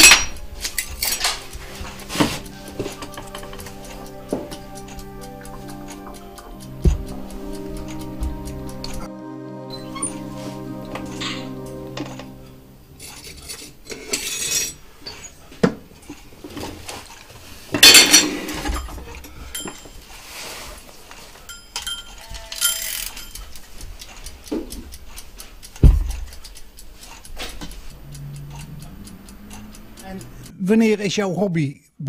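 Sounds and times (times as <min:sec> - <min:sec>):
metallic tool clinks: 0:17.8 - 0:20.0, 0:21.4 - 0:23.6
heavy thump: 0:25.8 - 0:26.2.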